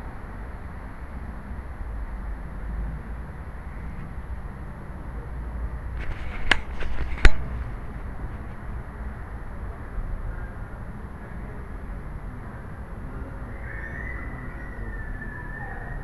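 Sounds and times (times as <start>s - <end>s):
low rumbling handling noise: 5.8s - 9.2s
camera knocking against something: 6.0s - 7.6s.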